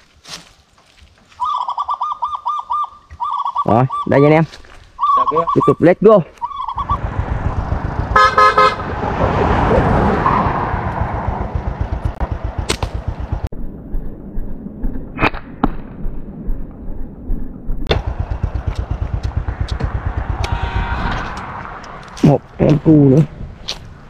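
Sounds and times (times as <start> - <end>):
vehicle engine running: 6.4 - 15.0, 16.1 - 24.0
horn honk: 8.0 - 9.0.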